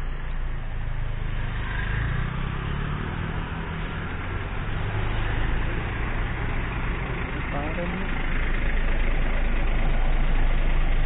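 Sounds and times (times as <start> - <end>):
coach diesel engine passing: 0.0 - 11.0.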